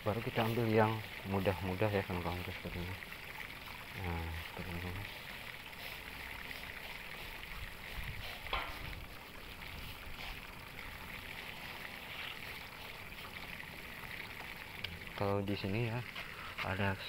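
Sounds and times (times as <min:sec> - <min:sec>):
paintbrush scrubbing concrete: 0:00.2 - 0:02.6, 0:04.2 - 0:09.0, 0:09.6 - 0:13.6, 0:15.6 - 0:17.0.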